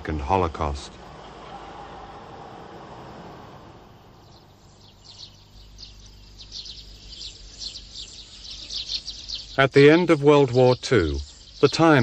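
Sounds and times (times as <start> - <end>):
soft wash of noise: 0.5 - 5.0
rapid high chirping: 4.0 - 12.0.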